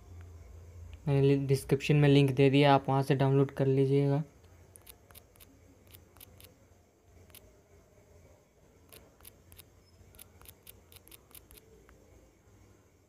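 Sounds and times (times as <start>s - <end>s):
low steady hum: 0.0s - 13.0s
phone keypad typing clicks: 4.8s - 6.5s, 8.9s - 11.7s.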